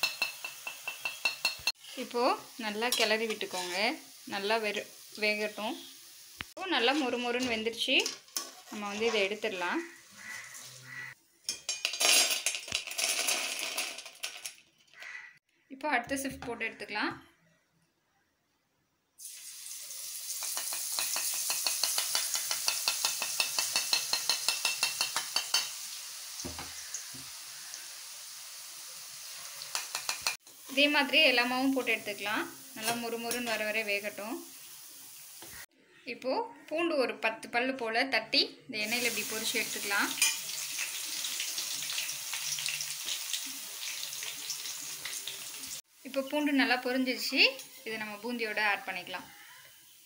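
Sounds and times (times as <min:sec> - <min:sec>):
steel ladle tapping metal ladle: 0:00.0 - 0:01.7
batter sizzling in hot oil: 0:00.0 - 0:07.5, 0:08.4 - 0:13.6, 0:19.2 - 0:35.7, 0:38.8 - 0:50.0.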